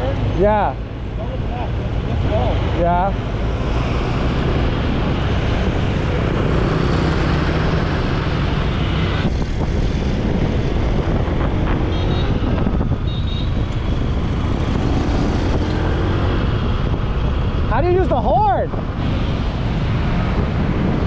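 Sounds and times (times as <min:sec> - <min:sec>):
road noise: 0:00.0 - 0:21.0
wind noise: 0:00.0 - 0:21.0.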